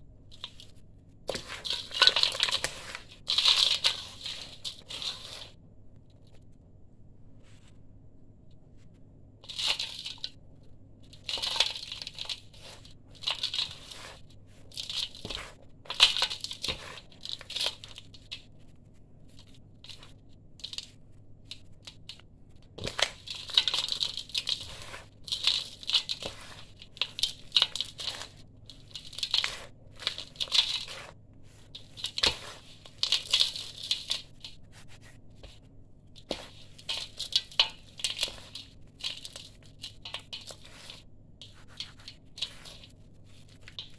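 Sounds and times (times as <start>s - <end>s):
dry sand mixture crunching: 1.3s - 5.6s, 11.2s - 18.0s, 22.8s - 35.5s, 36.2s - 43.9s.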